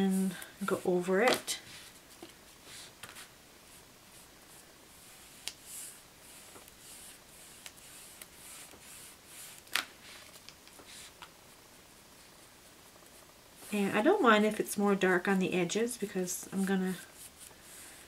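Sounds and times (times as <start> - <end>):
foam brush swishing on book cover: 0.0 - 11.2, 16.0 - 18.0.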